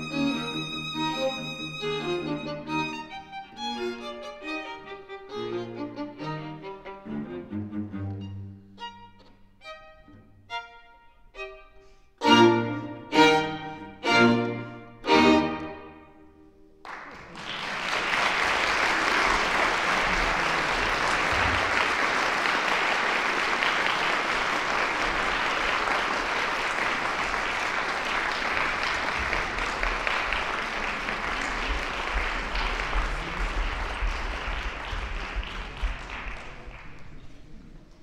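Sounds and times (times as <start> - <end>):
audience applauding: 16.8 - 38.0.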